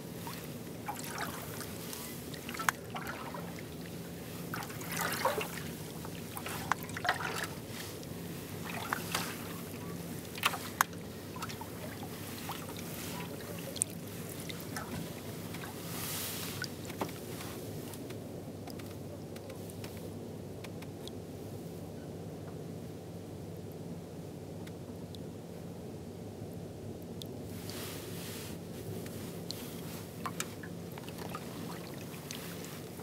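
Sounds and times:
paddle splashing in water: 0:00.0 - 0:16.8, 0:29.5 - 0:33.0
steady low hum: 0:00.0 - 0:33.0.

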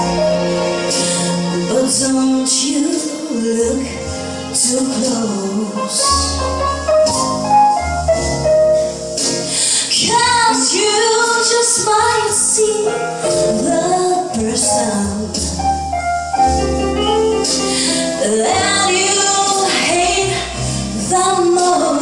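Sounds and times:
instrumental music with bass line: 0:00.0 - 0:22.0
woman singing: 0:01.5 - 0:06.4, 0:09.8 - 0:15.6, 0:17.9 - 0:22.0.

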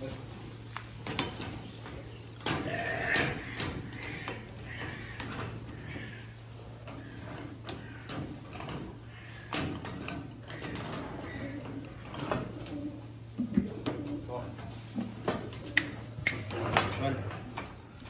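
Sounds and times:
goat bleating: 0:02.5 - 0:06.4
sharp clicks and knocks: 0:06.8 - 0:12.8.

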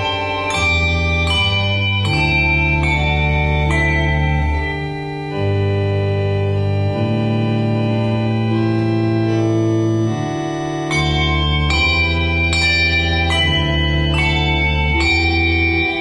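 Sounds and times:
handbells struck: 0:00.0 - 0:05.4, 0:10.8 - 0:16.0
organ-like chords: 0:00.0 - 0:16.0.

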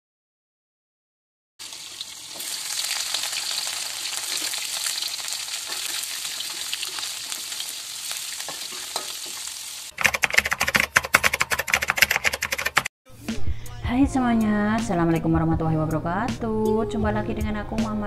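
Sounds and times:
fish sizzling in hot oil: 0:01.6 - 0:10.0
ladle stirring in wok: 0:02.3 - 0:10.4
typing-like clicks: 0:10.0 - 0:12.9
music: 0:13.1 - 0:18.0.

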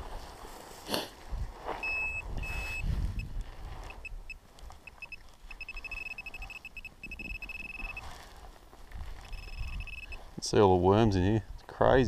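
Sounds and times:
high electronic tone: 0:01.8 - 0:03.3, 0:03.9 - 0:08.1, 0:09.3 - 0:10.2
short beeps: 0:01.8 - 0:08.1, 0:09.3 - 0:10.2.

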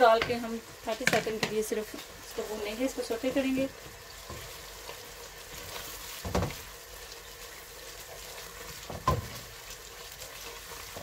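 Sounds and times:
onions sizzling in butter: 0:00.0 - 0:11.0.

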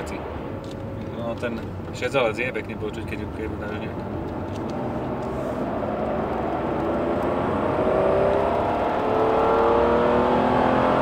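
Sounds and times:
car engine accelerating: 0:03.1 - 0:11.0.

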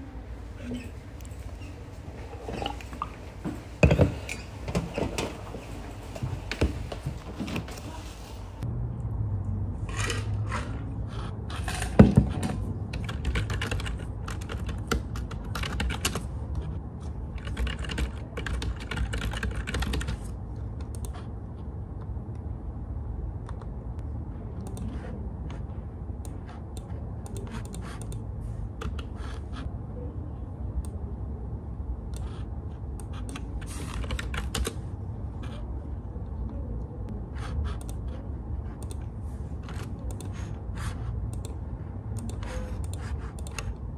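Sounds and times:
steady low hum: 0:00.0 - 0:43.9
typing on computer keyboard: 0:12.9 - 0:16.3, 0:17.3 - 0:20.3, 0:33.0 - 0:34.8.

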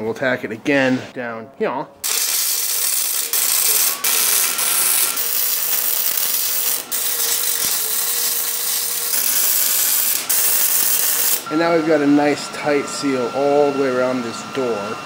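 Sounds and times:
welder arc crackling: 0:02.0 - 0:11.5.

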